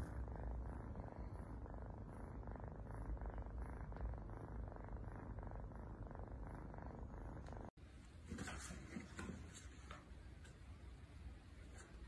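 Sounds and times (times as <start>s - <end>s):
kitten purring: 0.0s - 7.8s.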